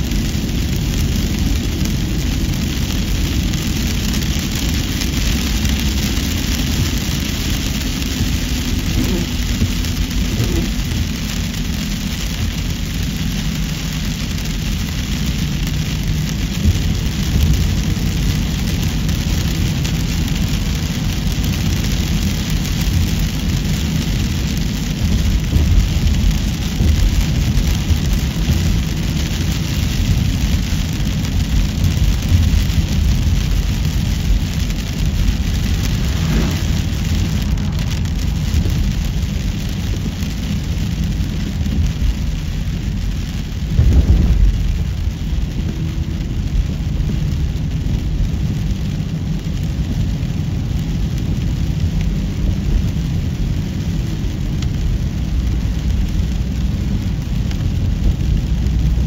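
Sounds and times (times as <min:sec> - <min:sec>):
car road and wind noise: 0:00.0 - 0:59.0
deep rumble: 0:00.0 - 0:59.0.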